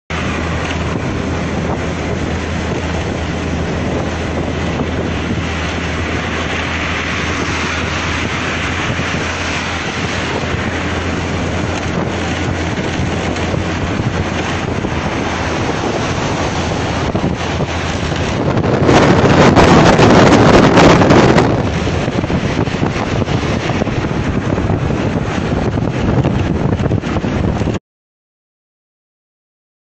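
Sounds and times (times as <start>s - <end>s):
wind roaring on microphone: 0.1s - 27.8s.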